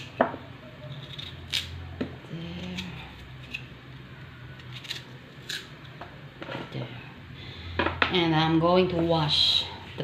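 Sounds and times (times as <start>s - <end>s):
knife scraping potato skin: 0.8s - 1.8s, 4.6s - 5.7s.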